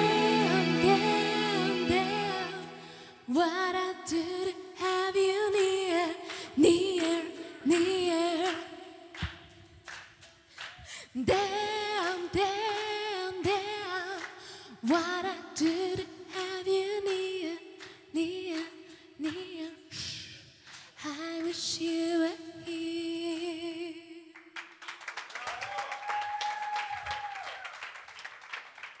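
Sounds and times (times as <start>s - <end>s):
woman singing into microphone: 0.0s - 9.0s, 10.9s - 20.3s, 21.0s - 24.3s
audience clapping: 5.6s - 11.4s, 24.4s - 29.0s.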